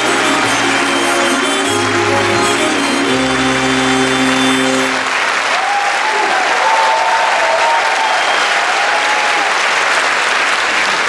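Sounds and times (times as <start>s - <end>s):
dance music: 0.0s - 5.2s
audience applauding: 0.0s - 11.0s.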